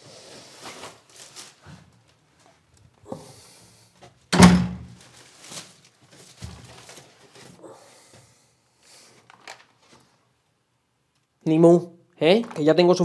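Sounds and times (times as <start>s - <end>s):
door shutting with a thud: 4.3s - 4.9s.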